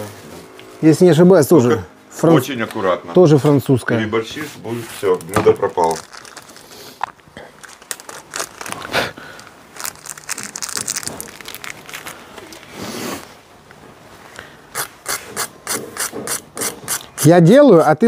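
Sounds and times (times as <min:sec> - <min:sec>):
crinkling and rustling: 0:04.5 - 0:12.8.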